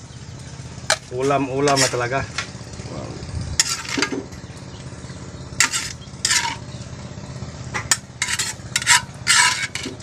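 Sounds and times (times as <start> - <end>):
utensil scraping a cooking pan: 0.9 - 2.3, 3.6 - 4.6, 5.6 - 6.8, 7.8 - 10.0.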